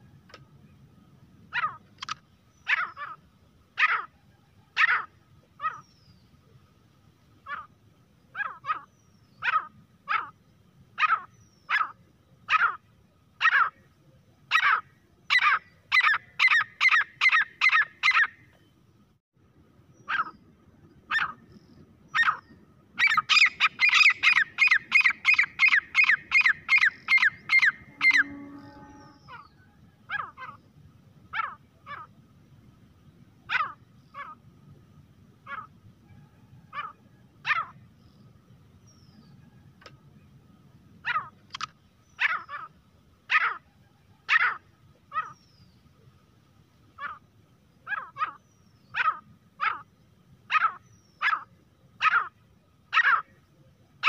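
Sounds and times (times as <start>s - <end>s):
francolin calling sharp notes: 23.3s - 29.3s.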